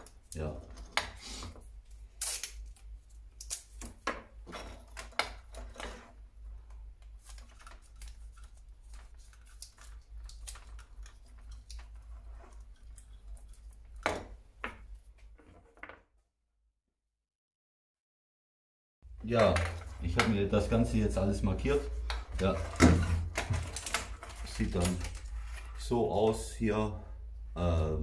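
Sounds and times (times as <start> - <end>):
adhesive tape pulled off roll: 2.1 - 2.8.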